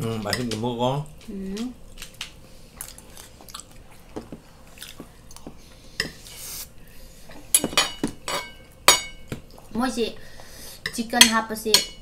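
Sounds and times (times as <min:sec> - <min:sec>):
cutlery clinking on plates: 0:07.6 - 0:09.2.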